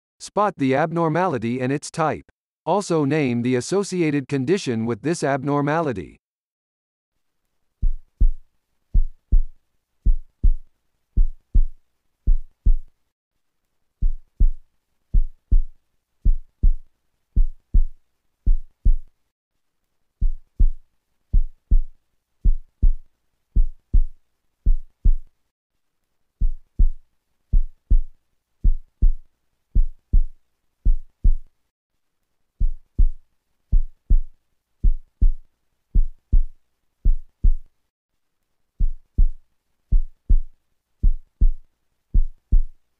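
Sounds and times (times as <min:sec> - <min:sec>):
heartbeat thuds: 0:07.8 - 0:12.9, 0:14.0 - 0:19.1, 0:20.2 - 0:25.3, 0:26.4 - 0:31.5, 0:32.6 - 0:37.7, 0:38.8 - 0:42.8.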